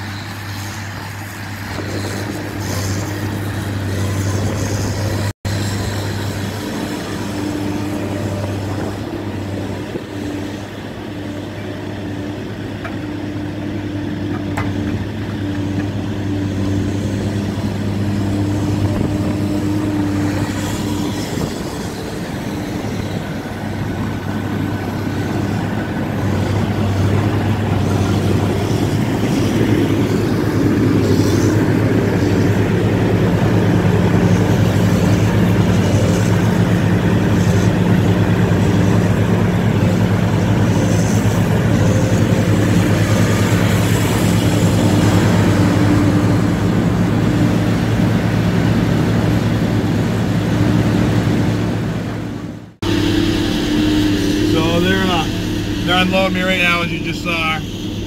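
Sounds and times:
heavy diesel engines running: 0:00.0 - 0:58.0
log loader unloading logs: 0:00.0 - 0:58.0.

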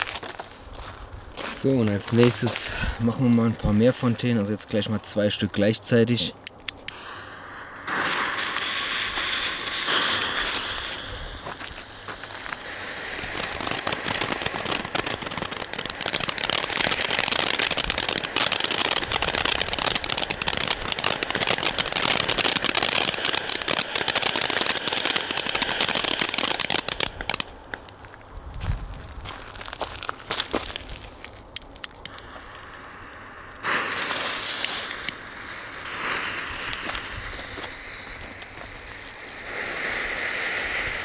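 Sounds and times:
firework fountains hissing: 0:06.2 - 0:27.9, 0:31.6 - 0:41.0
fast crackling: 0:08.1 - 0:28.0.

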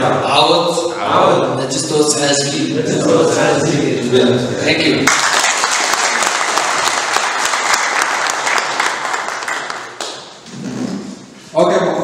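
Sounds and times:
audience applause: 0:05.0 - 0:10.4.

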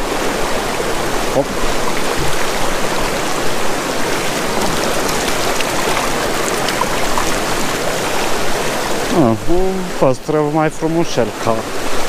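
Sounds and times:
river water rushing: 0:00.0 - 0:12.0.

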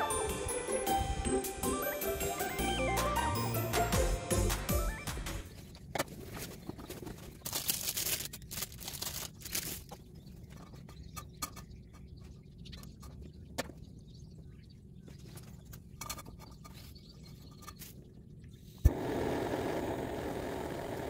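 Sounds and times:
plastic wrapper rustling: 0:06.1 - 0:10.1.

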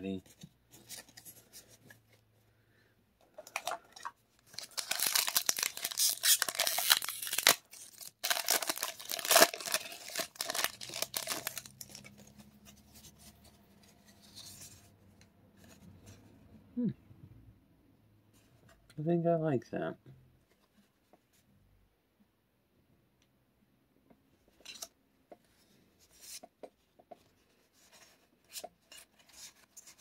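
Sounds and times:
foil wrapper tearing and crinkling: 0:04.5 - 0:12.3.

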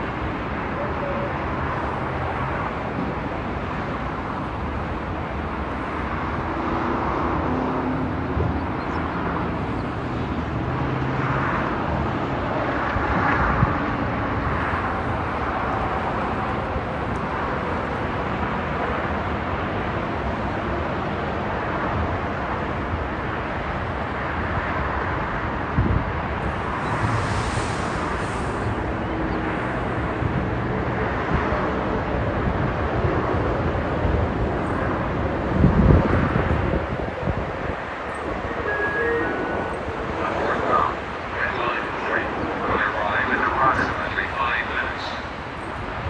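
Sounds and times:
highway traffic passing: 0:00.0 - 0:46.0.

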